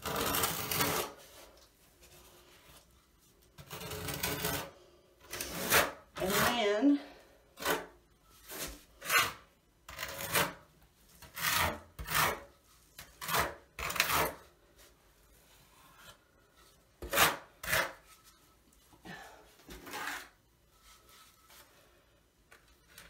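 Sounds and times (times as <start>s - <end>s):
steel trowel scraping mortar: 0.0s - 1.3s, 3.5s - 6.9s, 7.6s - 14.5s, 17.0s - 18.4s, 19.7s - 21.5s.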